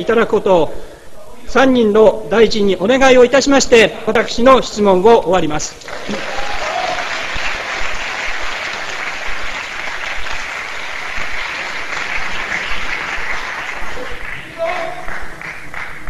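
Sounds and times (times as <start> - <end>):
audience applauding: 5.8 - 16.0.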